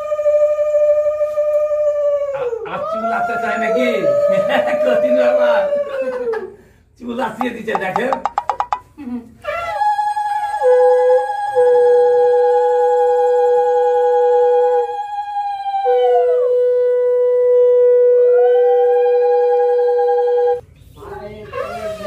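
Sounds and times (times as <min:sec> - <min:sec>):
conch shells blown in long notes: 0:10.4 - 0:20.6.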